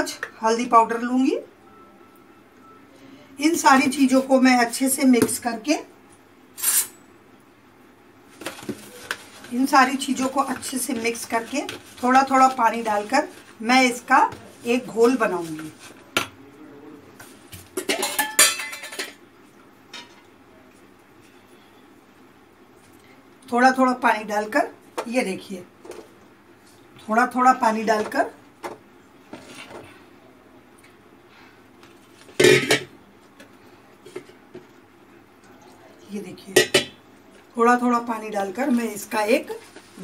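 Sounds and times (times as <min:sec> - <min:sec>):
spoon mixing batter in bowl: 0:08.4 - 0:16.1.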